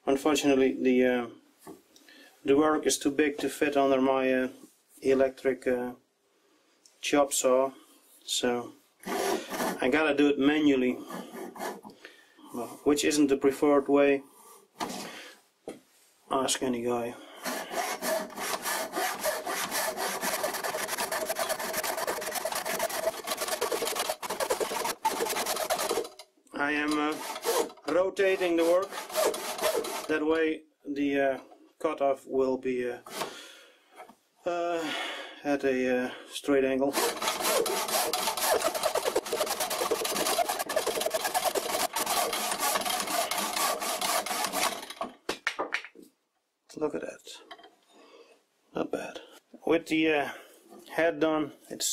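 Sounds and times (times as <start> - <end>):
hand saw rasping through log: 9.0 - 10.0, 10.9 - 11.9, 17.4 - 26.2, 26.8 - 30.3, 36.9 - 45.1.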